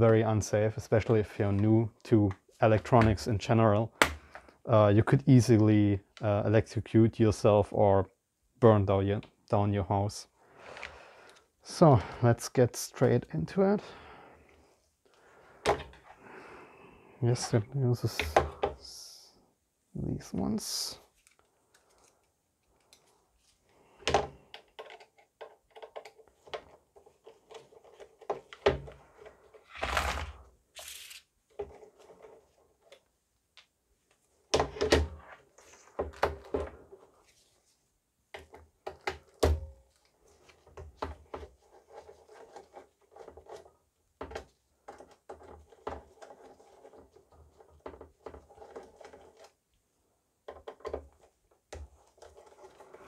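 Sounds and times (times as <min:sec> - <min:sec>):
screwdriver turning screws: 0:29.7 - 0:31.2.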